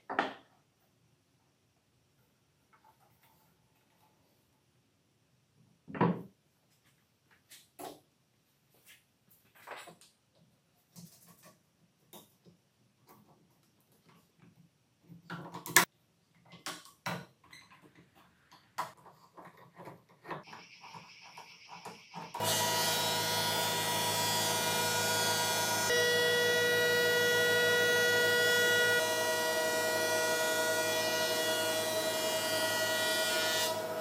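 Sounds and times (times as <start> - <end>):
thickness planer whining: 22.4 - 34.0.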